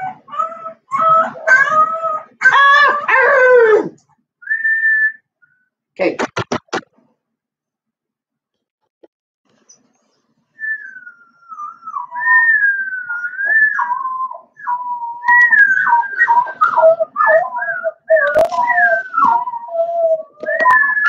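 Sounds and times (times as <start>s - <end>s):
wolf pups howling: 0.0s - 4.0s, 10.9s - 21.0s.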